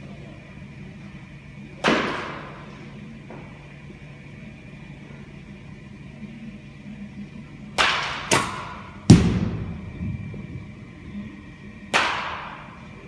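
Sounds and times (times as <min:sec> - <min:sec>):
low steady hum: 0:00.0 - 0:13.0
balls striking netting: 0:01.8 - 0:02.7, 0:07.8 - 0:13.0
bat cracking ball: 0:01.8 - 0:02.7, 0:07.8 - 0:13.0.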